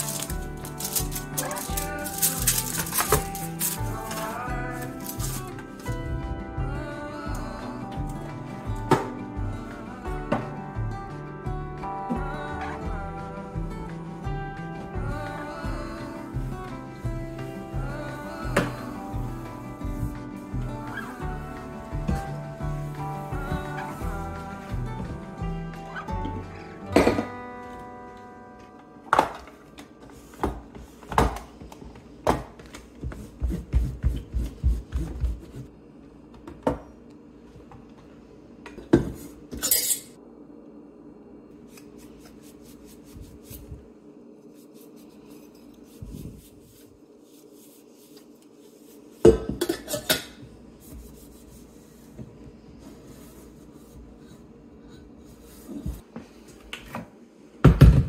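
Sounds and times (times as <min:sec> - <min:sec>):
kitchen appliances clattering: 0:49.3 - 0:50.4.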